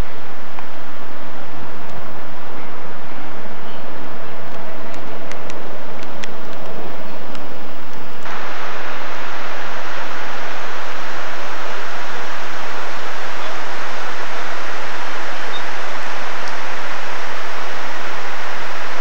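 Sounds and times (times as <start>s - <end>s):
waterfall rushing: 8.3s - 19.0s.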